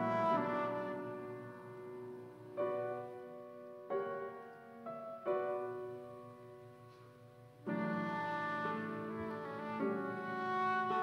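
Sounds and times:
flute solo: 0.0 - 2.1, 7.7 - 11.0
soft piano chords: 0.0 - 11.0.

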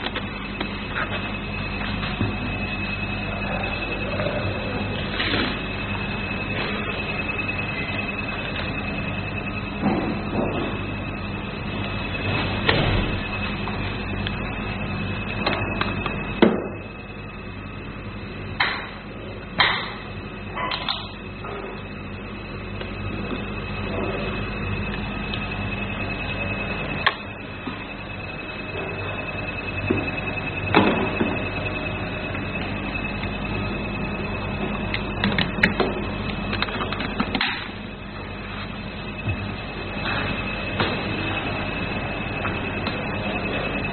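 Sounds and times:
steady hum: 0.0 - 43.9.

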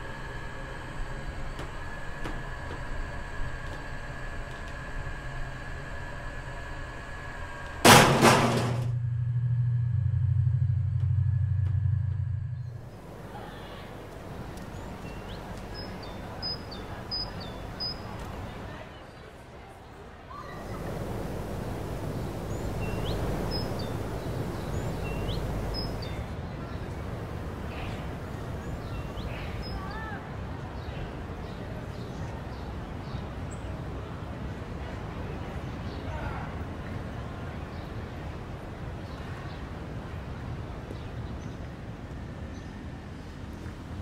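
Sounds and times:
low steady drone: 0.0 - 8.0, 8.8 - 18.8, 20.6 - 30.4
elevator humming: 0.0 - 18.8, 20.5 - 30.2
outdoor background noise: 0.0 - 44.0
loud bang and rattle: 7.8 - 9.0
bird chirping faintly: 12.6 - 18.7, 20.5 - 30.1.

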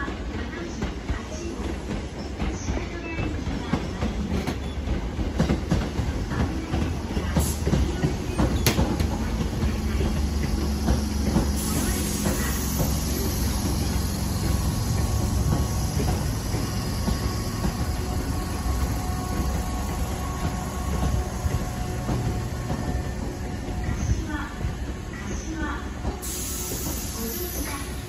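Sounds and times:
train wheels rolling: 0.0 - 28.0.

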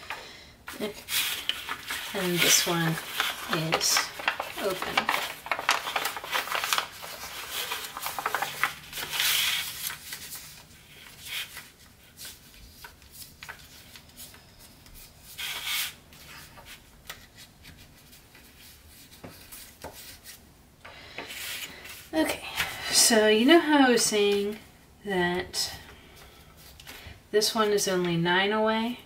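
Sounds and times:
paper rustling and crinkling: 0.7 - 20.4.

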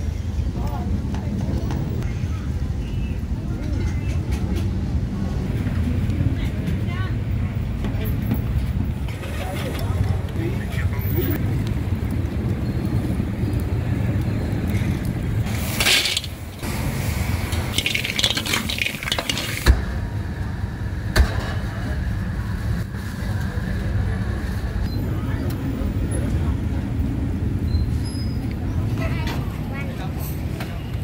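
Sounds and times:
street market rumble: 0.0 - 31.0
wok stir-frying sizzling: 15.4 - 20.3.

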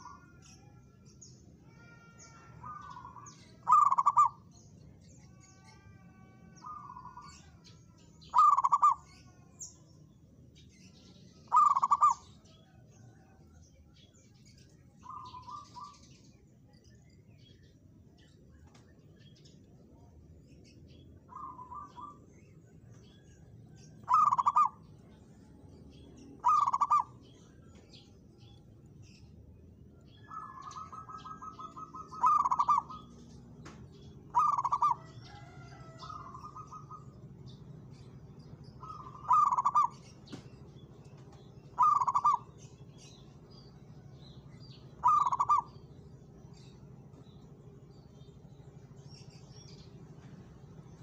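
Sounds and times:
small birds chirping: 0.0 - 51.0
dove cooing: 2.6 - 4.4, 8.3 - 9.1, 11.5 - 12.4, 24.0 - 24.8, 26.4 - 27.2, 30.2 - 33.2, 34.3 - 37.4, 38.8 - 40.3, 41.7 - 42.6, 44.9 - 45.9.

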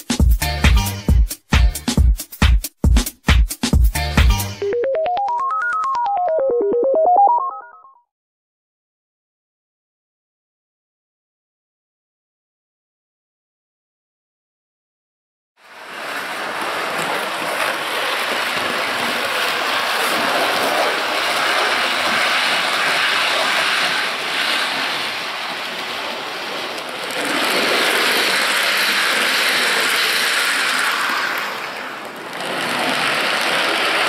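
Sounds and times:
model train rumbling on rails: 15.6 - 34.0.

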